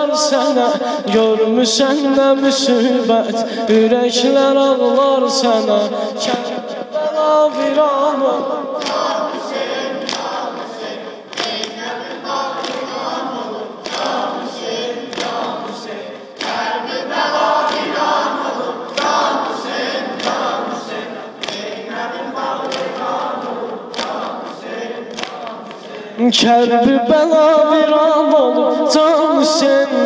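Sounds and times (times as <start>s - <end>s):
rhythmic sharp thumps: 5.0s - 26.8s
group of voices chanting: 5.6s - 26.5s.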